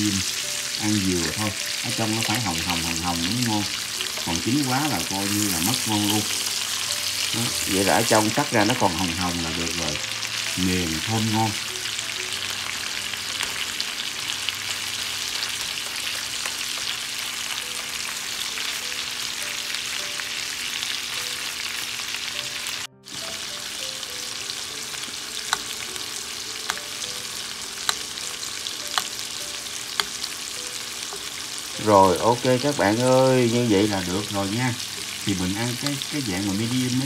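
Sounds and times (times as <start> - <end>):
steaks sizzling in a pan: 0.0 - 37.0
metal tongs clicking on pan: 29.0 - 29.2.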